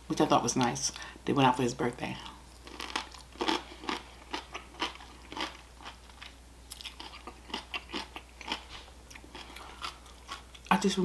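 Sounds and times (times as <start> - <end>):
person chewing cucumber: 2.2 - 10.7.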